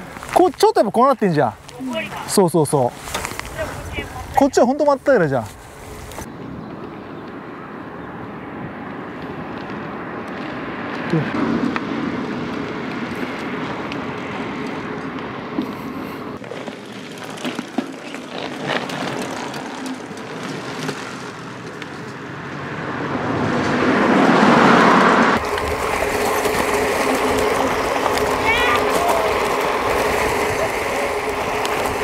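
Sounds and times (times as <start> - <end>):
gravel crunching ticks: 0.0 - 7.4, 8.8 - 22.8, 25.4 - 32.0
bike tyre and wind noise: 0.0 - 32.0.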